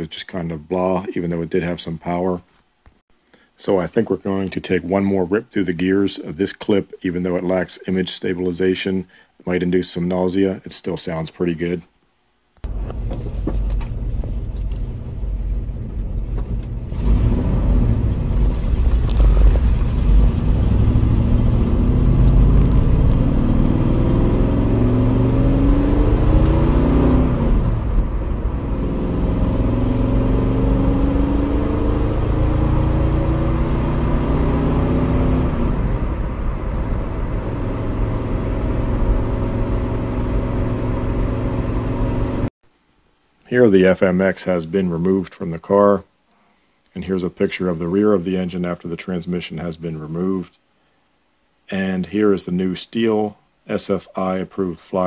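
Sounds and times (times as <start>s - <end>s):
car engine revving: 12.6s - 42.5s.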